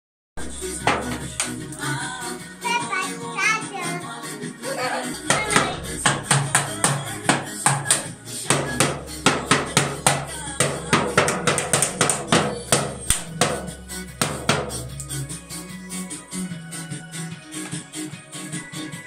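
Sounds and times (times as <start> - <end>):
toy drums struck with drumsticks: 5.2 - 15.2.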